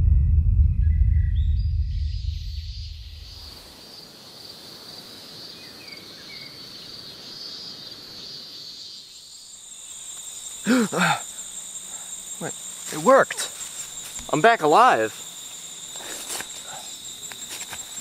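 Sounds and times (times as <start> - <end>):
insects chirring: 2.0 - 18.0
young man gasping: 10.6 - 11.4.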